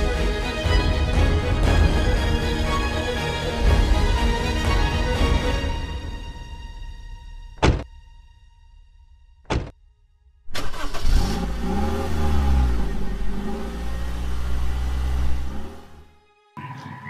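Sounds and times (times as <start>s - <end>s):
short thud: 7.6s - 7.9s, 9.5s - 9.7s
car engine revving and accelerating: 10.6s - 16.1s.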